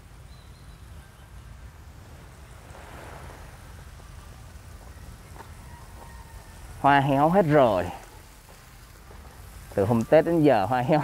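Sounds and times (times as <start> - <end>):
wind rumbling on microphone: 0.0 - 7.3
soft hiss: 0.0 - 11.0.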